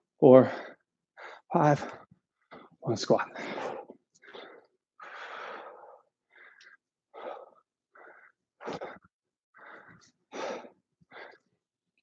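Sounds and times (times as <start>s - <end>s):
man breathing forcefully: 3.3s - 11.6s.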